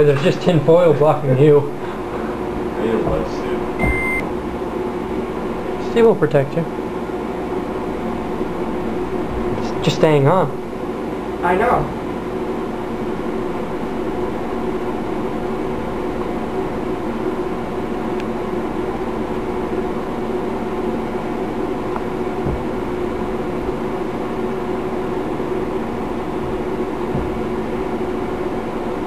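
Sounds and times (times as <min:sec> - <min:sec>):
microwave oven humming: 0:00.0 - 0:29.0.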